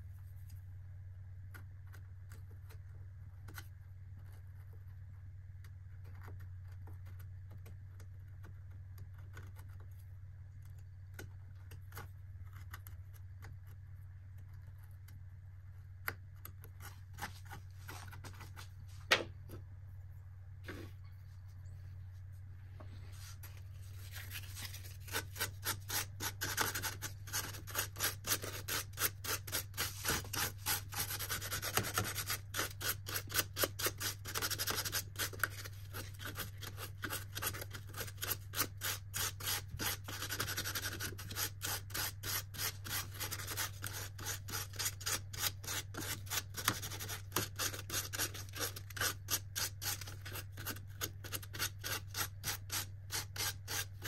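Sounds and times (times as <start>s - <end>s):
sandpaper rubbing wood: 23.1s - 54.0s.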